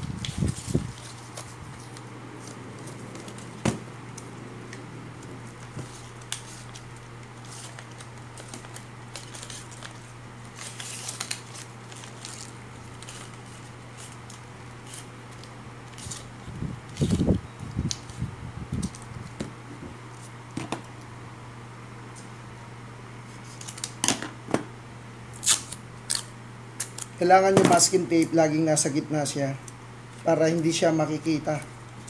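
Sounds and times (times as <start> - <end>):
low hum: 0.0 - 10.4
masking tape crackling and rustling: 0.0 - 19.4.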